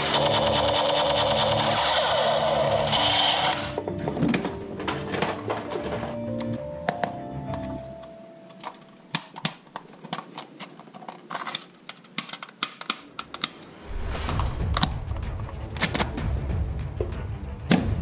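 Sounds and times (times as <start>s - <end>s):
plastic toys clicking: 8.5s - 13.6s
low rumble: 13.2s - 18.0s.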